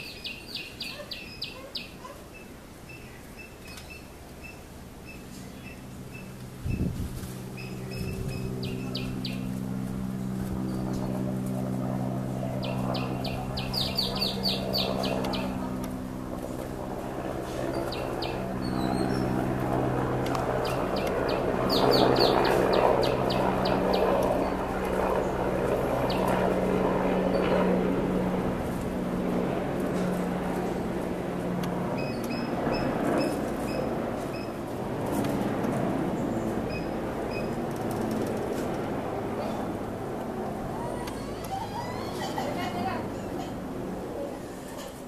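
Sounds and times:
bird chirping: 0.0 - 6.3, 7.6 - 9.5, 12.6 - 15.6, 17.8 - 19.4, 20.6 - 24.1
steady low hum: 2.6 - 44.7.

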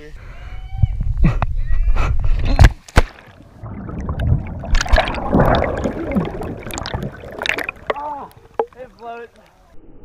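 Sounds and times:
splash into river: 3.0 - 8.4
underwater bubbles gurgling: 3.2 - 9.1.

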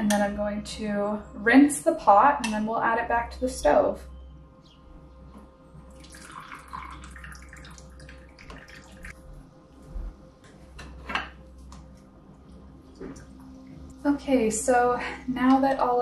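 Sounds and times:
water trickling and dripping: 5.8 - 9.2, 11.8 - 14.1.

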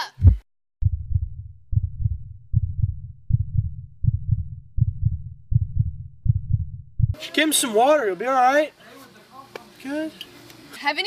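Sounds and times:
heartbeat thuds: 0.0 - 7.2.

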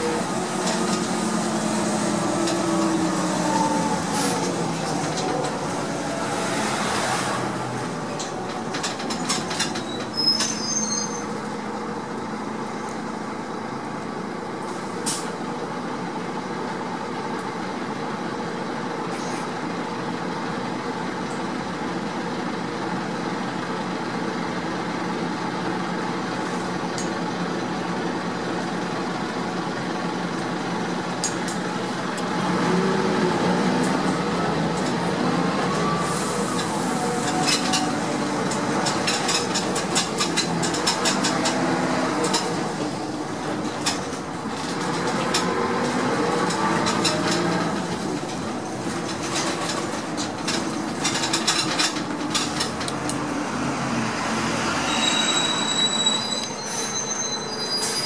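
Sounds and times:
bus engine drone: 0.0 - 58.0
road and cabin noise: 0.0 - 58.0.

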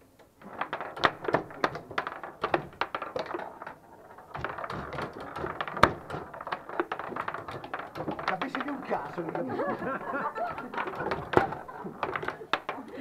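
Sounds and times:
foosball ball and players clacking: 0.0 - 13.0
foosball rods knocking: 0.0 - 13.0.

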